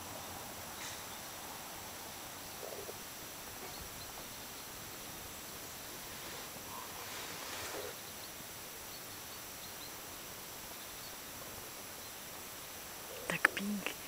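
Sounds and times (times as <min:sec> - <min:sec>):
distant bird chirps: 0:00.0 - 0:14.0
faint outdoor hiss: 0:00.0 - 0:14.0
soft rustle: 0:02.6 - 0:08.2.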